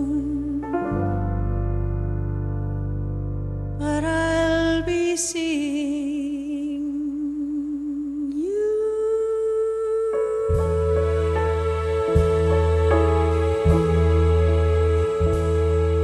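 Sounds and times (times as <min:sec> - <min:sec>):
woman singing with vibrato: 0:00.0 - 0:00.8, 0:03.8 - 0:16.0
low piano and bass chord: 0:00.0 - 0:05.1, 0:10.2 - 0:16.0.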